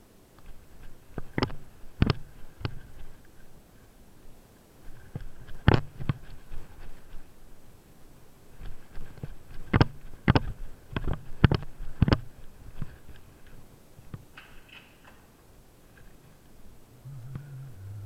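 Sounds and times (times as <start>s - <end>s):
footsteps on stone stairs: 8.6s - 13.6s.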